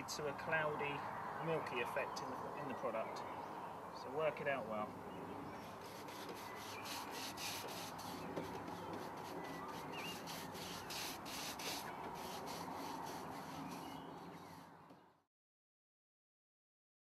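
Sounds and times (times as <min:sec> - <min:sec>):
paintbrush scrubbing gritty coating: 0:05.7 - 0:14.7.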